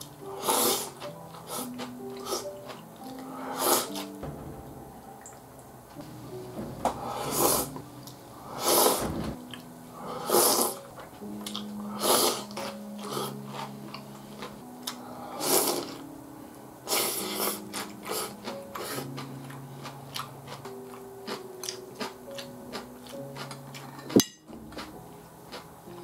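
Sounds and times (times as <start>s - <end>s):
person chewing: 0.0s - 4.1s, 11.4s - 16.0s, 16.9s - 23.9s, 24.7s - 24.9s, 25.5s - 26.0s
soft music of held notes: 0.0s - 26.0s.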